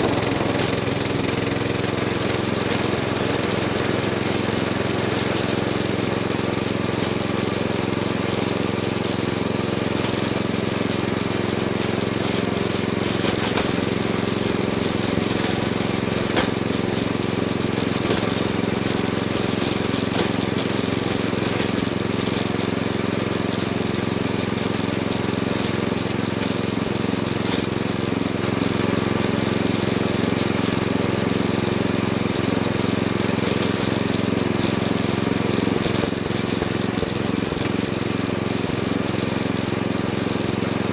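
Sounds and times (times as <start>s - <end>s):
lawn mower engine running: 0.0s - 40.9s.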